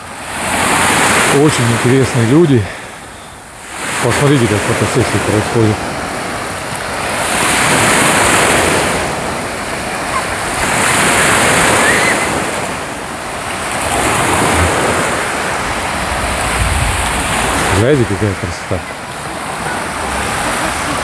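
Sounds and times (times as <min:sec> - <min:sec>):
small waves breaking on sand: 0:00.0 - 0:21.0
wind buffeting microphone: 0:05.8 - 0:18.2.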